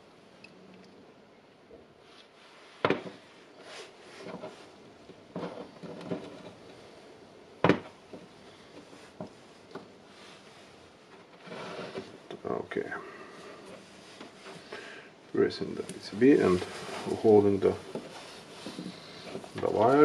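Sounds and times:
sharp handling knocks: 2.8s - 3.2s
soft rustles and taps: 7.6s - 12.4s, 15.6s - 20.0s.

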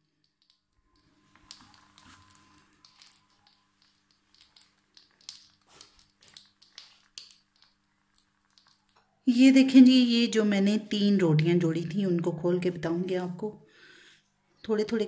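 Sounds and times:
flatbread crackling on hot pan: 1.0s - 9.0s
low steady hum: 8.8s - 13.8s.

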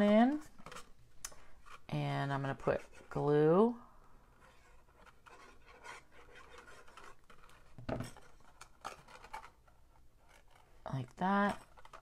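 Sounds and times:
cardstock scratching and rustling: 4.2s - 12.0s.

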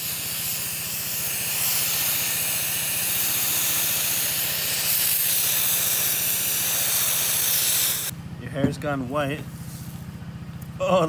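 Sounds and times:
air duster spraying hiss: 0.0s - 8.1s.

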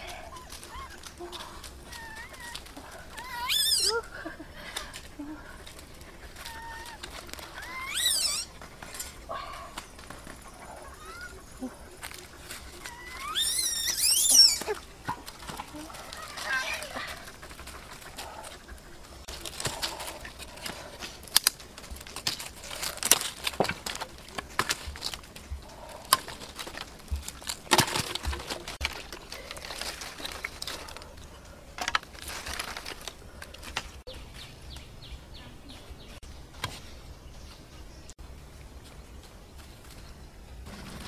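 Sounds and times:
dry sticks crackling and snapping: 0.0s - 4.0s, 4.6s - 10.6s, 11.9s - 18.6s, 19.3s - 35.0s.

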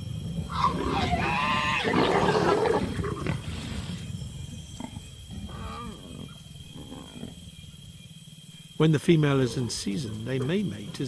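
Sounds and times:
leopards snarling and growling: 0.0s - 8.3s.

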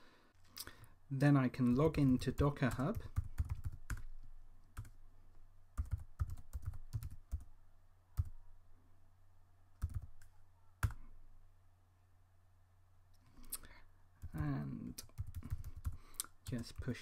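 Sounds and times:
faint low hum: 0.0s - 17.0s.

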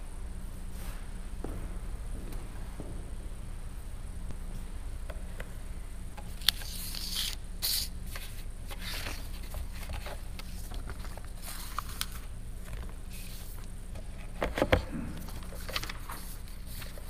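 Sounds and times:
low hum: 0.0s - 7.5s
pages rustling: 6.3s - 17.0s.

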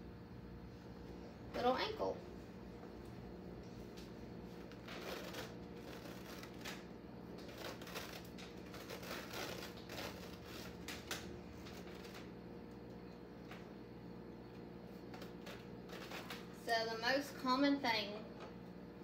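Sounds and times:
fabric rustling and scraping: 3.7s - 12.4s, 14.9s - 16.6s.

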